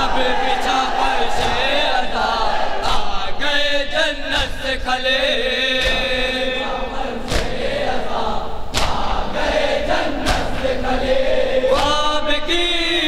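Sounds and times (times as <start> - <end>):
men chanting a lament: 0.0 - 13.0
hands striking chests: 8.7 - 9.2.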